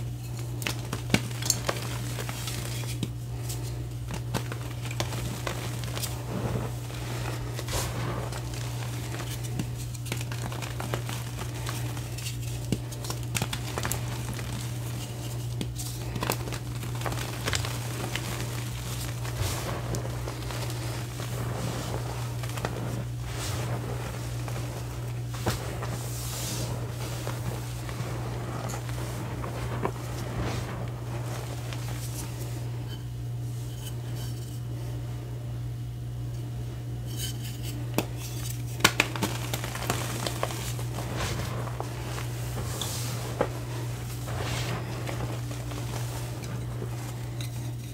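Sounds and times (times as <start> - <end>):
chalk crunching: 0.0 - 32.8, 38.8 - 47.9
hands patting powder: 0.0 - 32.9, 38.0 - 47.9
low hum: 0.0 - 36.9, 39.2 - 47.9.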